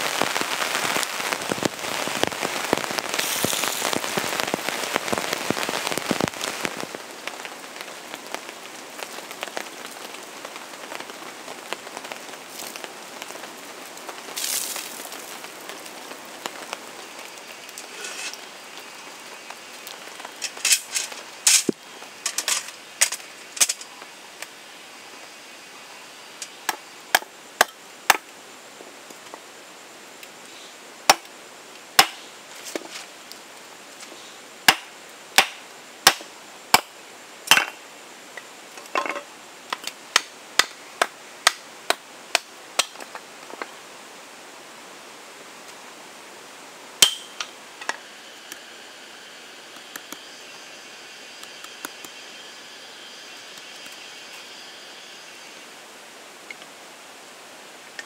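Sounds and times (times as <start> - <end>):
steady rain falling: 0.0 - 58.0
wood being chopped: 32.0 - 32.2, 34.7 - 36.9.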